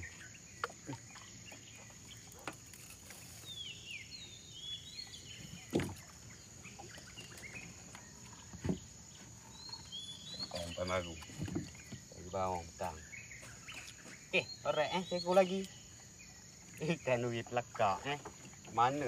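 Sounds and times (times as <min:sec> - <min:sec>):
birds whistling calls: 0:03.4 - 0:16.3
soft knocks: 0:08.5 - 0:08.9.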